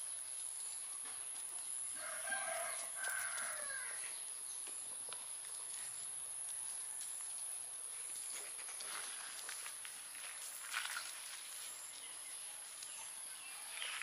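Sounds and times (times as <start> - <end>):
steady high hiss: 0.0 - 10.7
puppy paws on gravelly dirt: 0.0 - 14.0
rooster crowing: 2.0 - 4.1.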